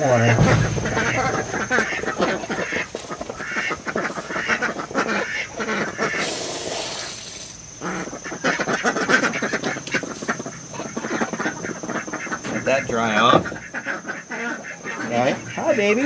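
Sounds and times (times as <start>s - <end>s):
ducks quacking: 0.0s - 16.0s
water splashing onto ground: 6.2s - 7.6s.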